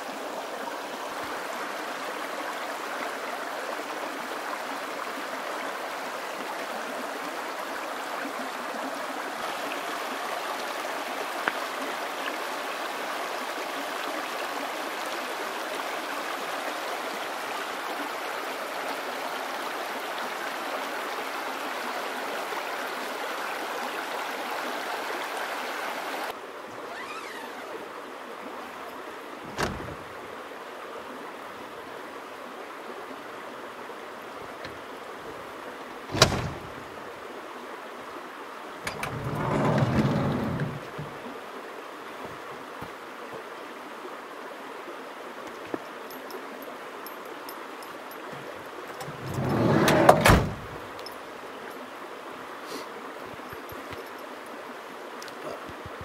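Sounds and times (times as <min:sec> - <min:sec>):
creek water rushing: 0:00.0 - 0:56.0.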